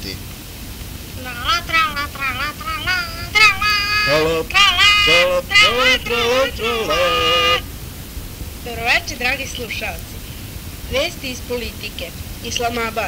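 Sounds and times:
high voices singing a jingle: 1.2 - 8.1, 8.7 - 10.0.

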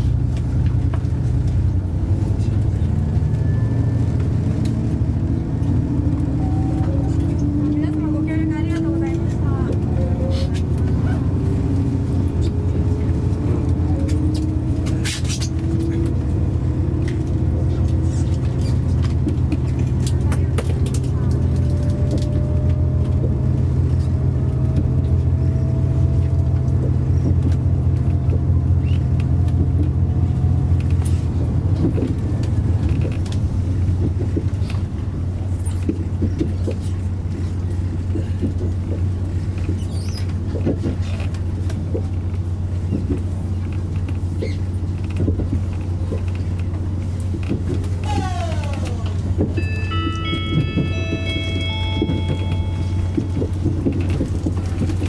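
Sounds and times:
diesel train engine whine: 0.0 - 55.0
wheels clicking over rail joints: 4.0 - 55.0
falling chime notes: 49.6 - 53.5.

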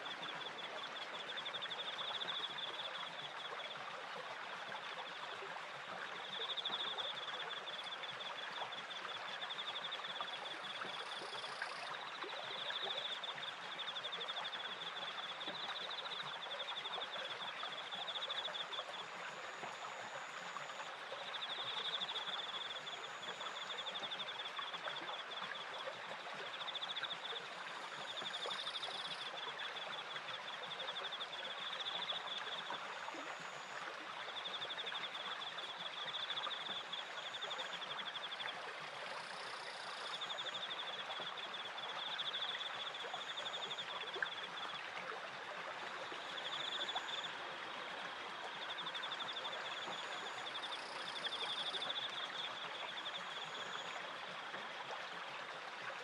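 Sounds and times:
crickets chirping: 6.3 - 24.5, 26.5 - 33.8, 34.4 - 44.4, 46.0 - 47.3, 48.6 - 54.0
water rushing at water wheel: 14.5 - 56.0.

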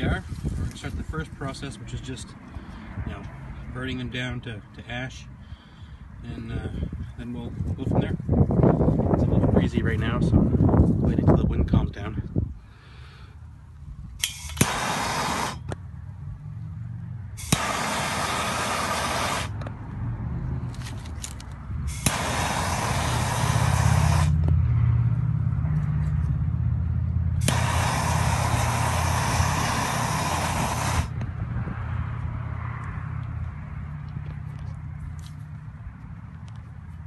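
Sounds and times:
steady low rumble: 0.0 - 37.0
sharp click: 14.2 - 14.8
gas torch hissing: 14.2 - 15.6, 17.4 - 19.6, 21.9 - 24.4, 27.4 - 31.1.

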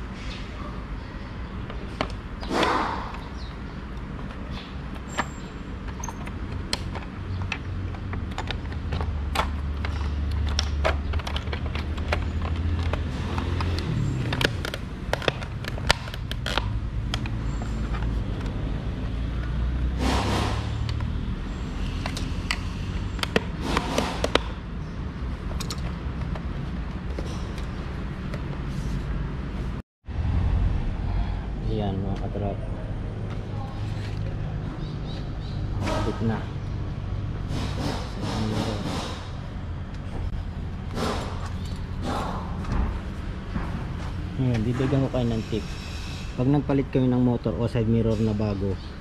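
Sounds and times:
rattling and scraping: 4.1 - 28.8
plastic parts clicking: 5.9 - 18.6, 25.6 - 26.5
steady low rumble: 29.1 - 35.8.

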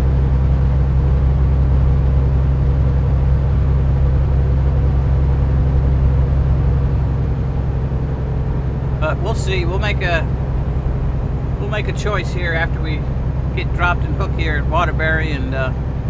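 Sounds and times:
truck diesel engine cruising: 0.0 - 16.0.

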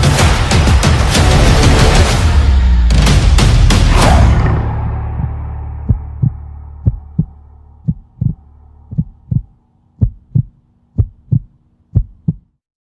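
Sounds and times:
deep boom: 3.1 - 11.4
heartbeat thumps: 5.1 - 12.6.

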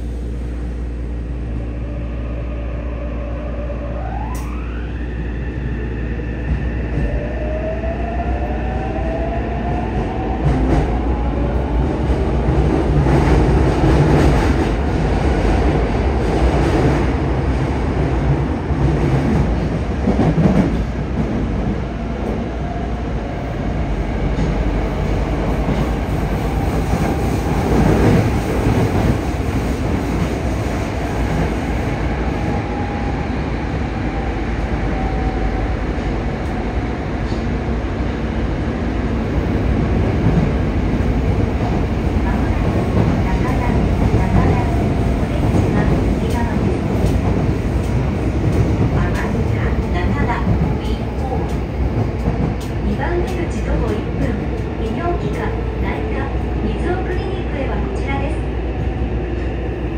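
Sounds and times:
train wheel rumble: 6.3 - 59.9.

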